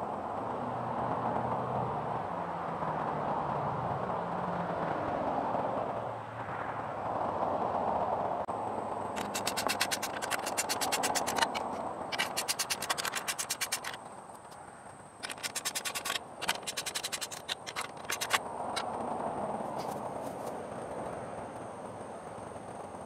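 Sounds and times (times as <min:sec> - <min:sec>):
ratchet wrench clicking: 0:09.2 - 0:14.0, 0:15.2 - 0:18.9.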